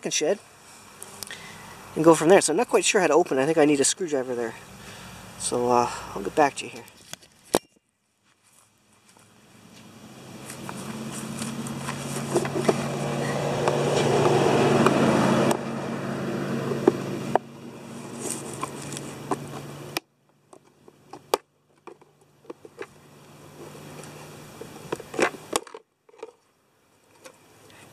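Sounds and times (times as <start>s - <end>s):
vehicle engine hum: 0.0s - 7.4s, 8.5s - 27.9s.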